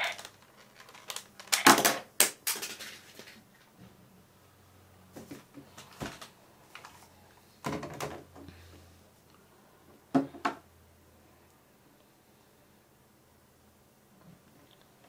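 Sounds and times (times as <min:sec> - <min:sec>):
plastic toys clicking and tapping: 0:00.0 - 0:03.4
plastic toys clattering: 0:00.0 - 0:03.7.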